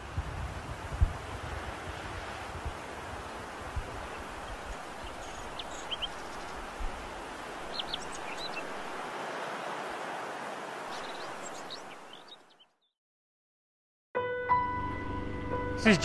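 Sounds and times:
steady rushing hiss: 0.0s - 12.2s.

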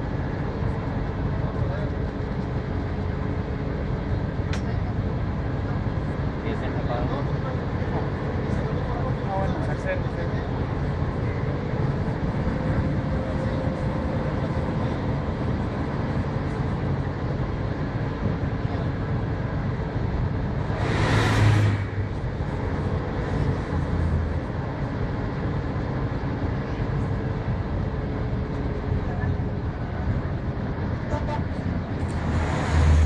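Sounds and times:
diesel engine drone: 0.0s - 33.0s
road noise: 0.0s - 33.0s
brief rush of noise: 20.7s - 22.0s.

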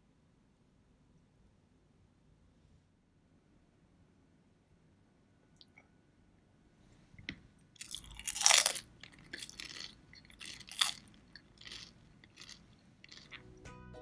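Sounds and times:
chewing crunches: 7.8s - 13.5s
crunch of crispy food bite: 7.8s - 13.5s.

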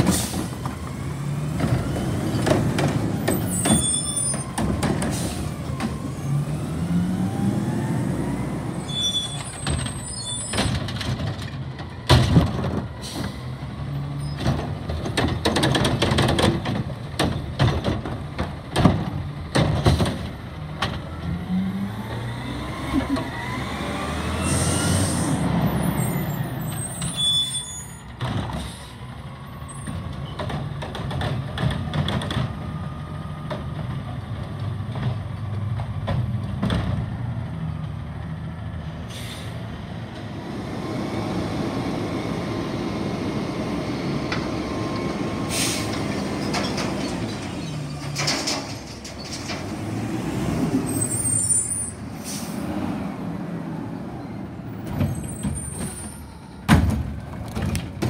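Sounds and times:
air brakes hissing: 0.0s - 0.6s, 5.0s - 5.6s, 13.0s - 13.5s, 24.4s - 28.0s, 28.6s - 29.0s, 39.0s - 39.7s, 45.3s - 46.2s, 50.9s - 52.8s
diesel engines running: 0.0s - 58.0s.

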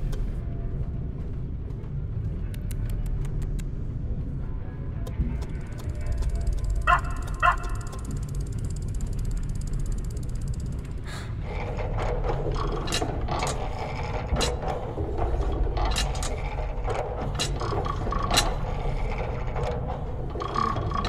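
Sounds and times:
steady low rumble: 0.0s - 21.0s
clockwork clicking and ratcheting: 5.7s - 21.0s
dog yapping barks: 6.9s - 8.0s.

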